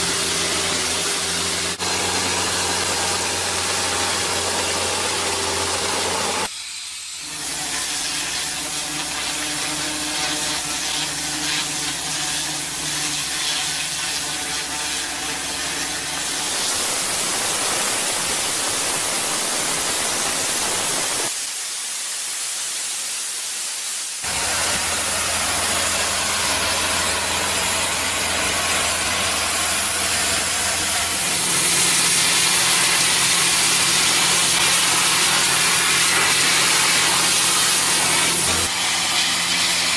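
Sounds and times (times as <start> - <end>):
high-pressure water jet hissing: 0.0 - 39.9.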